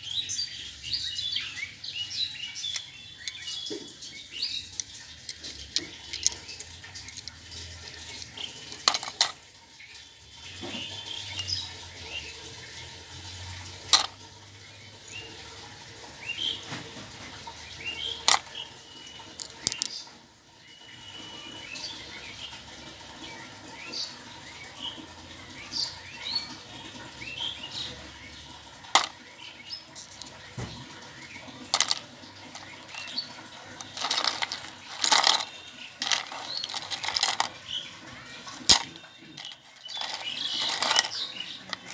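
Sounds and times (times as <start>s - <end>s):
birds chirping: 0.0s - 16.7s, 17.3s - 41.9s
plastic toys clicking and knocking: 2.5s - 9.6s, 10.4s - 14.4s, 16.6s - 20.2s, 28.7s - 41.9s.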